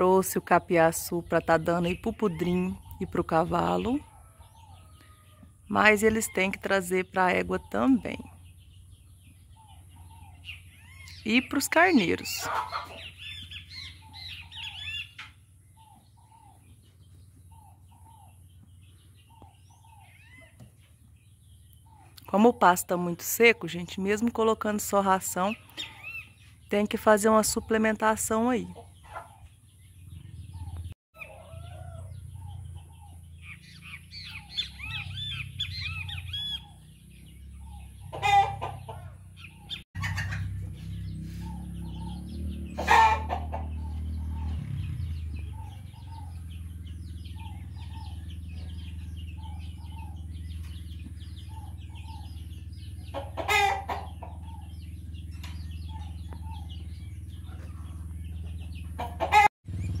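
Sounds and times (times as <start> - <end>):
chickens clucking: 0.0 - 23.8, 25.0 - 26.7, 27.4 - 60.0
rooster crowing: 4.0 - 5.6, 31.2 - 32.6, 42.8 - 43.9.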